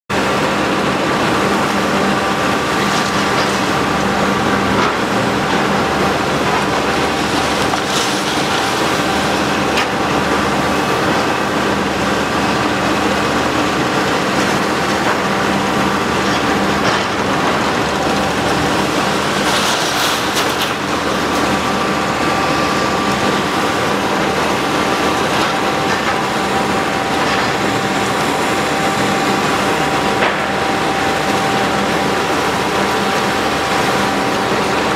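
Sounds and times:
diesel engine running: 0.1s - 34.9s
concrete debris clattering: 2.2s - 11.4s, 14.1s - 28.2s.

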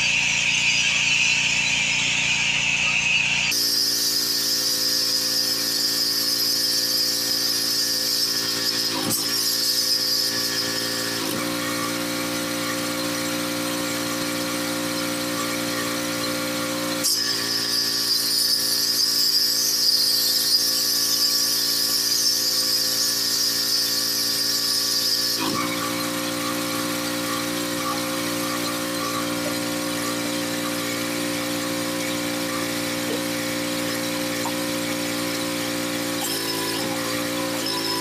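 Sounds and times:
pressure washer running: 0.0s - 38.0s
water jet hissing: 24.3s - 38.0s.

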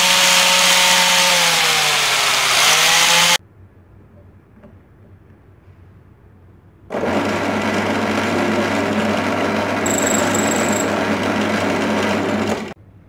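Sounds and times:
drill press motor hum: 7.0s - 12.8s
drill bit grinding metal: 9.7s - 11.6s.

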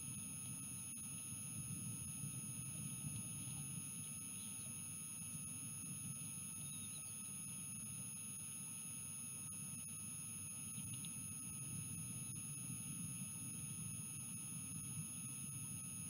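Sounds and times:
faint chirps: 4.3s - 4.8s, 6.6s - 7.3s.

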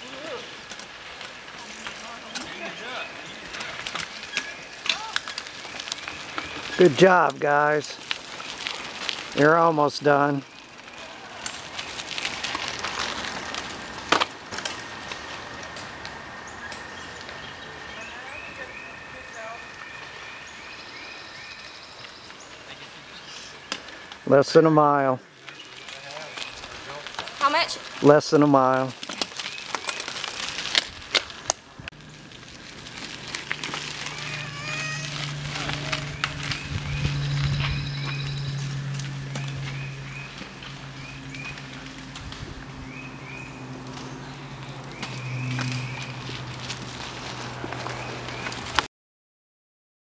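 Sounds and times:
bike tyres rustling over leaves: 0.0s - 48.9s.

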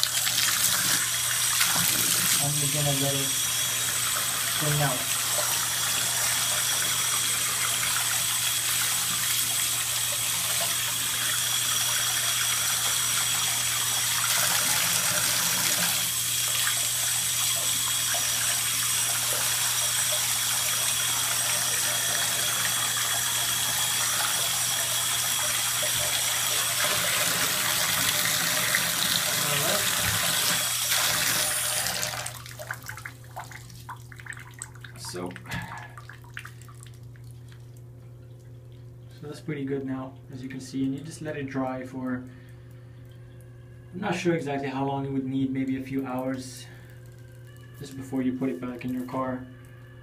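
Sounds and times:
tap water running into bathtub: 0.0s - 39.0s.

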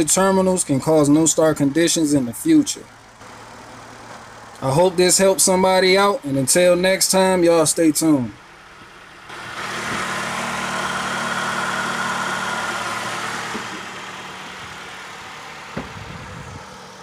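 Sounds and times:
vehicle noise with low hum: 0.0s - 17.0s.

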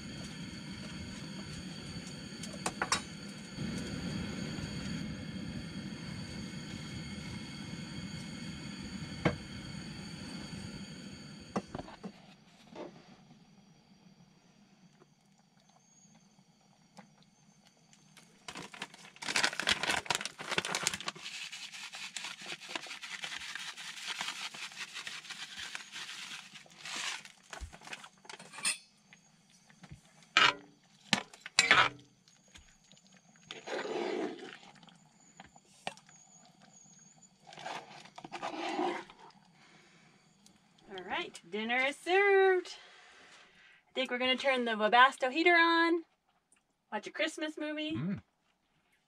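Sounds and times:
stirring and scraping in a pot: 21.0s - 28.8s, 30.4s - 32.0s, 33.4s - 34.9s, 37.4s - 39.5s.

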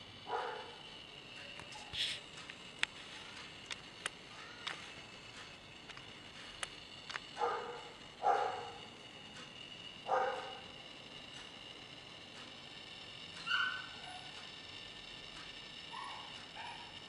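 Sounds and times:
faint clicks: 2.4s - 7.4s.

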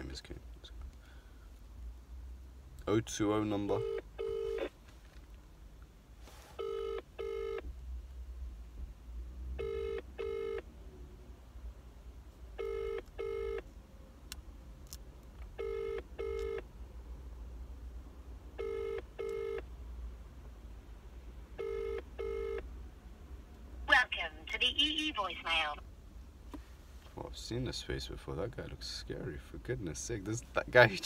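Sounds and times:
telephone ringback tone: 3.8s - 4.7s, 6.6s - 7.6s, 9.6s - 10.6s, 12.6s - 13.6s, 15.6s - 16.6s, 18.6s - 19.6s, 21.6s - 22.6s.

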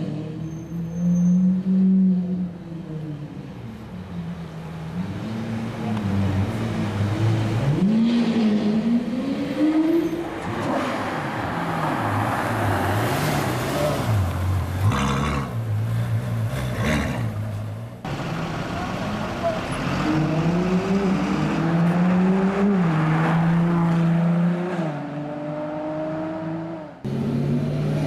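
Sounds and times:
car engine revving up: 19.4s - 28.0s.

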